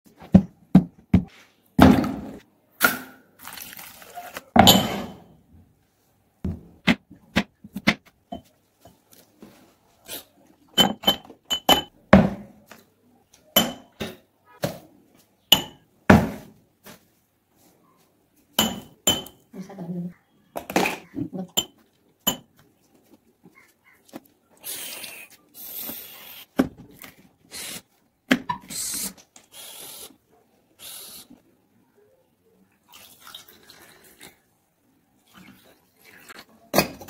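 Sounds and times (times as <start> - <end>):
spoon clinking on glasses: 10.8 - 11.9, 21.6 - 22.5.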